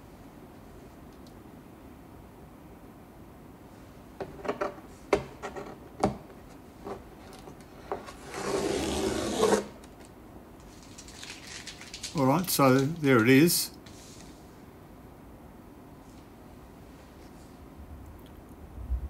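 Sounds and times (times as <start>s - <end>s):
paper rubbing across board: 8.1s - 9.9s.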